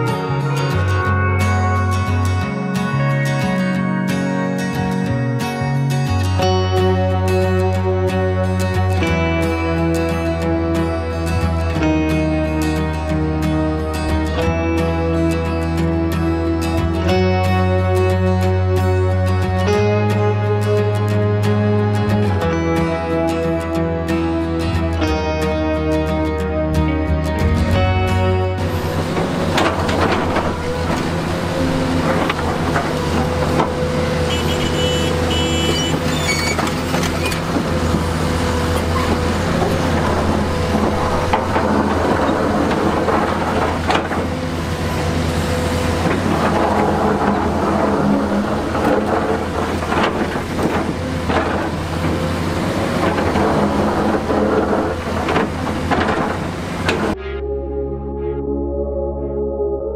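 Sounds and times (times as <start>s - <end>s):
diesel earthmoving machinery running: 0.0s - 57.2s
short high squeaks: 34.3s - 37.5s.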